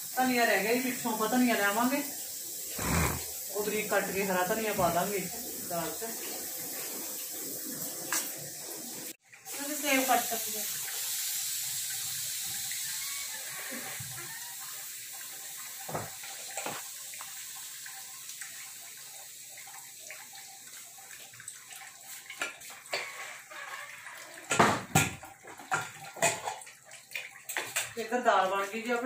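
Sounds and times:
pressure cooker hissing steam: 0:00.0 - 0:06.0, 0:09.5 - 0:15.0.

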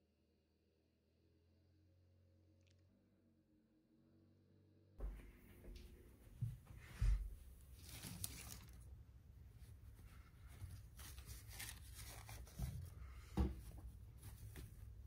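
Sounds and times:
rustling of plush toys: 0:06.3 - 0:15.0.

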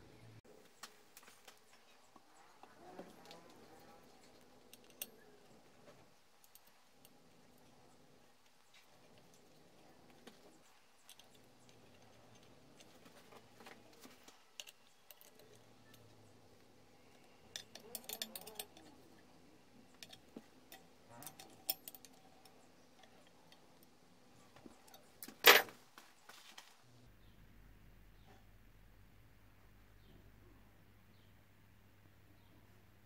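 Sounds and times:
screwdriver clicking and scraping: 0:17.5 - 0:19.0.

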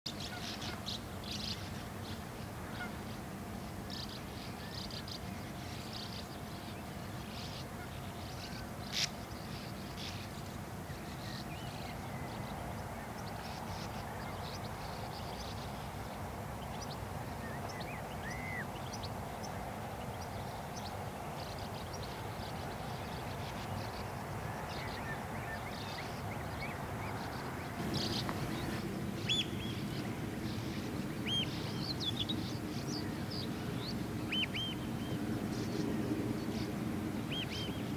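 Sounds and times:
birds calling: 0:00.1 - 0:37.9
low background noise: 0:00.1 - 0:37.9.

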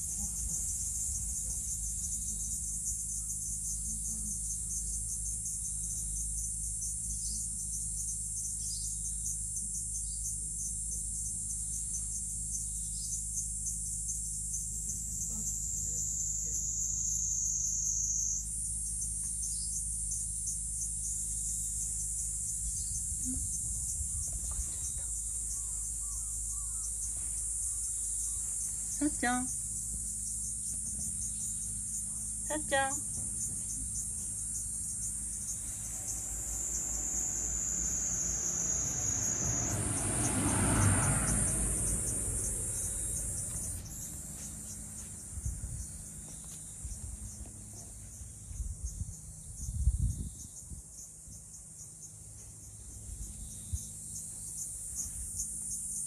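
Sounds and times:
insects trilling: 0:00.0 - 0:56.0
car passing: 0:35.8 - 0:45.0.

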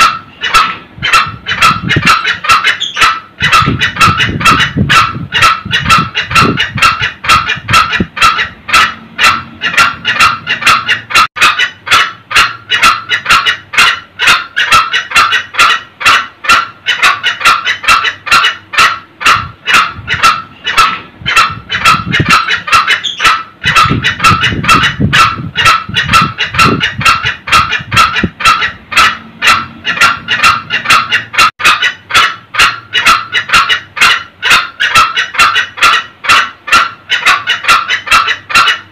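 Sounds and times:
junglefowl cackling: 0:00.0 - 0:38.9.

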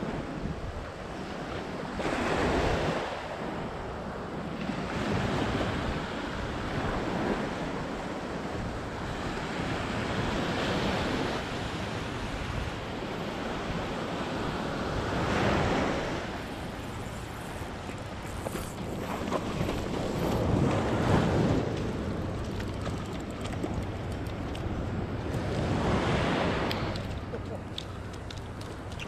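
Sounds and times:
wind rumbling on microphone: 0:00.0 - 0:29.0
surf breaking on beach: 0:09.0 - 0:29.0.

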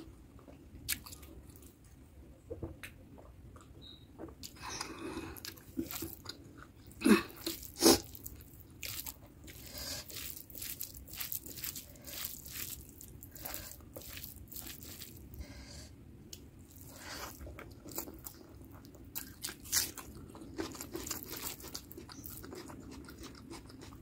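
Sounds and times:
chewing and mouth sounds: 0:00.0 - 0:01.8, 0:02.5 - 0:15.4, 0:16.3 - 0:24.0
fingers squishing rice: 0:05.4 - 0:15.4.

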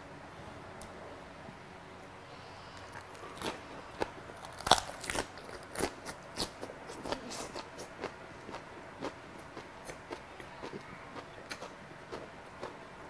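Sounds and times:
chewing crisp cabbage wrap: 0:02.8 - 0:13.0.

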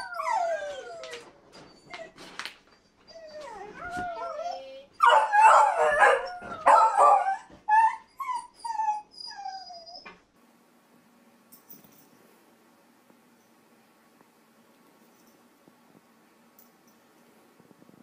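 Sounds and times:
dog howling and baying: 0:00.0 - 0:02.1, 0:03.1 - 0:10.0.

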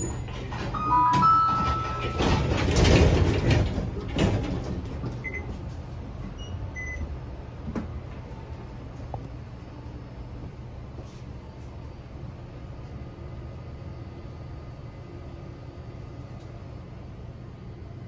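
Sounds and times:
short electronic beeps: 0:00.8 - 0:02.5.

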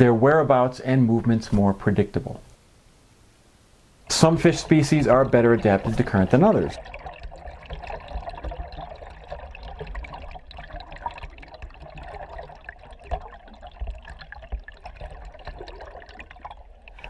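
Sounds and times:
stream gurgling underwater: 0:04.1 - 0:17.0.

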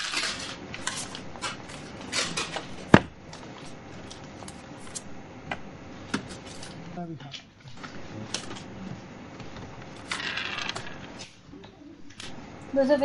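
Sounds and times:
people moving about a room: 0:00.0 - 0:13.0.

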